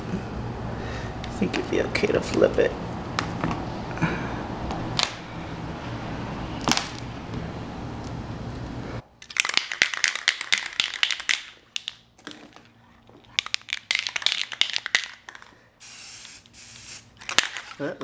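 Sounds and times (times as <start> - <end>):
spray can ball rattling: 9.2 - 12.5, 13.4 - 17.9
spray paint hissing: 15.8 - 17.1.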